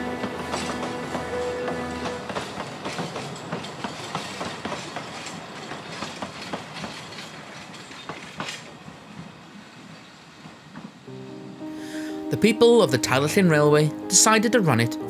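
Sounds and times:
train wheels clattering on track: 0:00.0 - 0:11.1.

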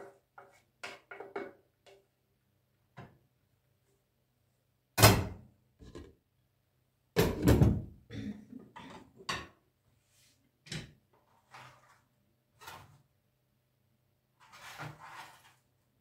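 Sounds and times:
scrapes: 0:11.2 - 0:13.1, 0:14.4 - 0:15.8.

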